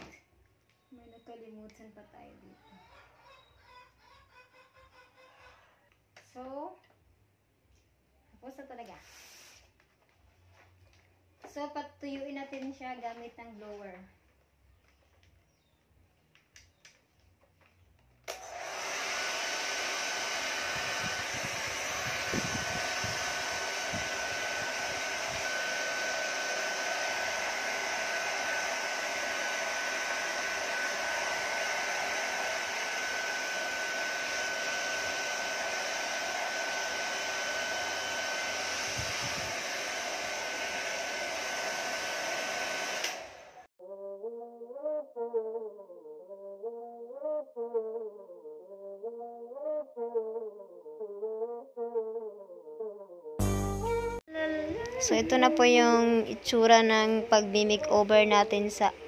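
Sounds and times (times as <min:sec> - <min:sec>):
hair dryer running: 0:18.3 - 0:43.7.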